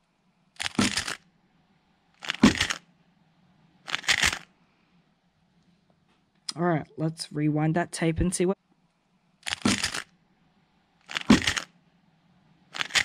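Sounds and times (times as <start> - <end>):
puzzle cube rapid plastic clicking: 0.6 - 1.2, 2.2 - 2.8, 3.9 - 4.4, 9.4 - 10.1, 11.0 - 11.7, 12.7 - 13.0.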